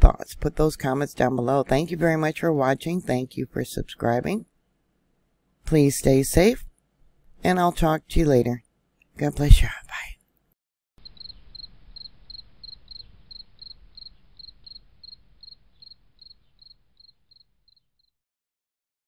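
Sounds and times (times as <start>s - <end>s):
insect chirping: 11.0s - 18.1s.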